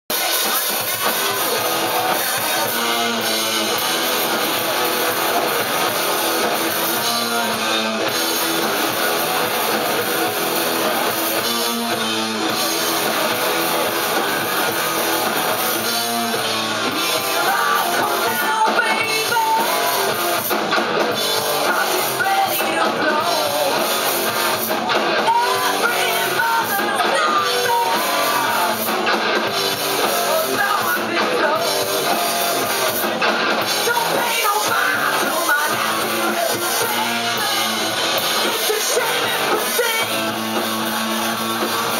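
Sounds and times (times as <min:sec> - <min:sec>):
live rock band playing: 0:00.1 - 0:41.9
lead vocal singing: 0:16.9 - 0:20.3, 0:21.4 - 0:24.3, 0:25.2 - 0:29.0, 0:30.0 - 0:40.8.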